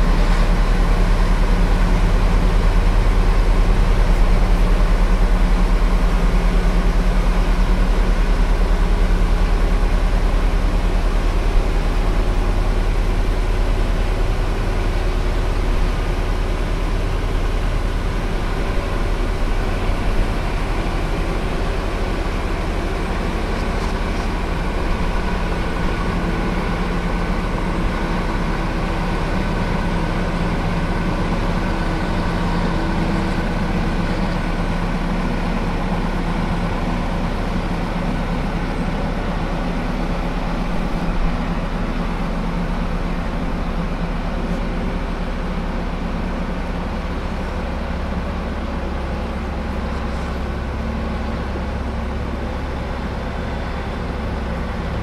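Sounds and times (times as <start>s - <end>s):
diesel engine droning: 0.0s - 55.0s.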